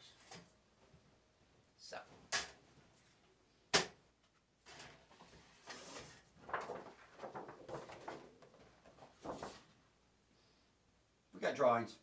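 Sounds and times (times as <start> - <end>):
paper sheet rustling: 4.6 - 9.8.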